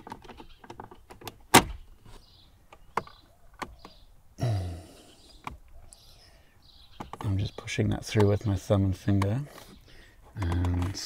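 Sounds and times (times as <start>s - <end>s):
plastic cup holder clicking: 10.4s - 11.0s.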